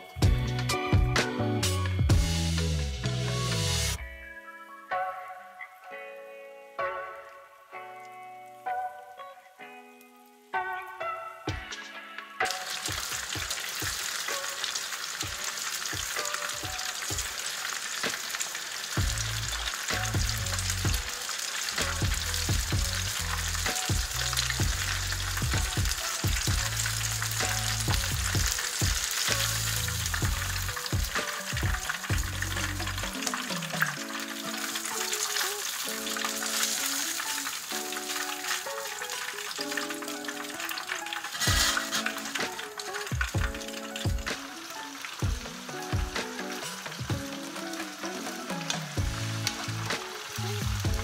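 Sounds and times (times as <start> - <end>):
meat deep-frying in oil: 12.4 - 51.0.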